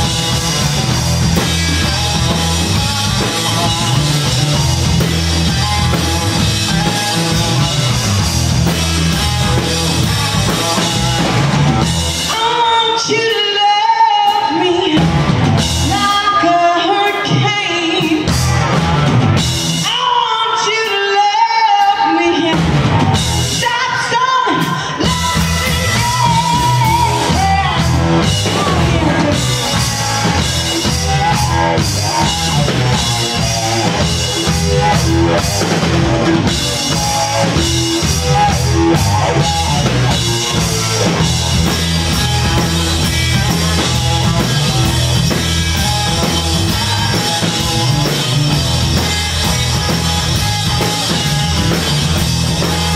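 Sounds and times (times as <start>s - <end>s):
rock band playing: 0.0s - 52.9s
woman singing: 12.3s - 15.2s, 15.8s - 18.4s, 19.8s - 22.7s, 23.5s - 30.0s.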